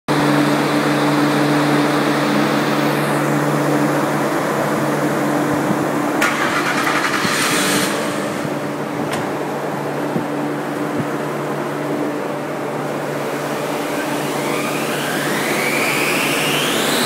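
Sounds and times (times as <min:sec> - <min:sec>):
car engine idling: 0:00.4 - 0:17.0.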